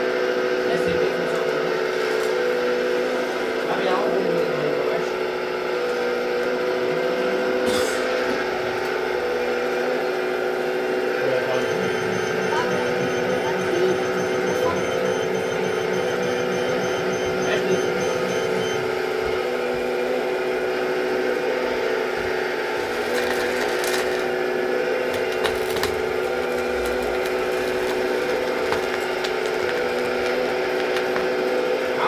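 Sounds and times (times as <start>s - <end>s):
hydraulic drive whining: 4.4s - 32.0s
gravel scraping and clicking: 22.7s - 31.7s.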